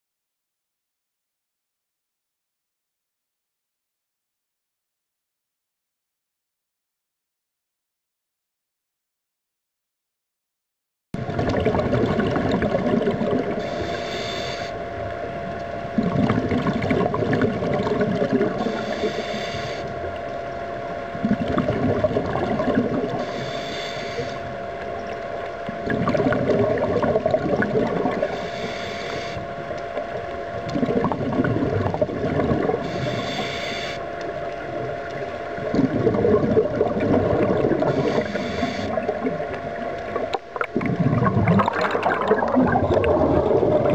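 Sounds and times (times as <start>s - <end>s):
bubbling exhalations underwater: 11.2s - 13.6s, 15.9s - 18.9s, 21.1s - 23.2s, 25.7s - 28.3s, 30.6s - 33.1s, 34.7s - 43.9s
steady hum: 11.2s - 43.9s
hissing regulator inhalations: 13.6s - 14.8s, 18.5s - 20.1s, 23.1s - 24.6s, 28.1s - 29.5s, 32.7s - 34.1s, 37.6s - 39.2s.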